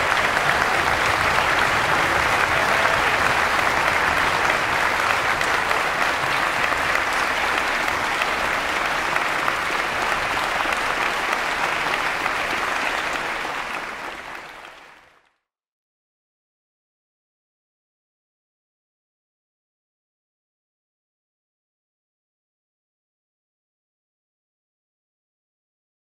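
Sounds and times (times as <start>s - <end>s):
audience applauding: 0.0s - 15.3s.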